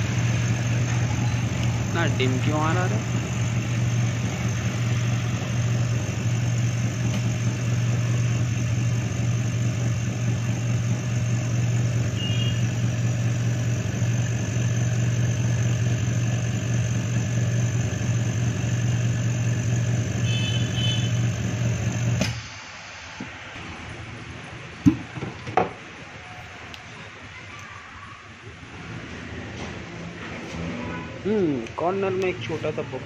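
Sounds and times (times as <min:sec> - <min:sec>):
vacuum pump humming: 0:00.0 - 0:22.6.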